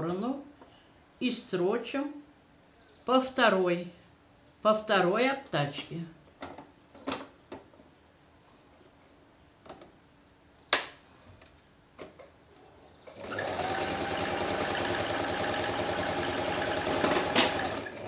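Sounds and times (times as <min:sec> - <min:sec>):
sewing machine stitching: 0:13.1 - 0:18.0.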